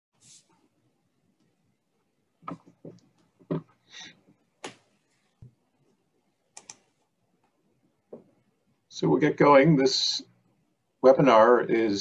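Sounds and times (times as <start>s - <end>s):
faint clicks and knocks: 2.4s - 3.8s.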